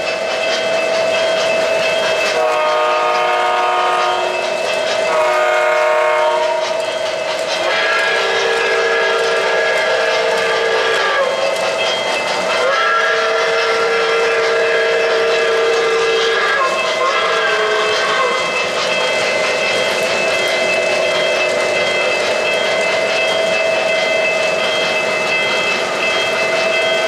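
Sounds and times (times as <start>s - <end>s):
faint rail clicking: 0.0s - 27.0s
model trains running: 0.0s - 27.0s
model train horn chords: 2.3s - 4.4s, 5.1s - 6.8s, 7.6s - 11.4s, 12.6s - 18.5s.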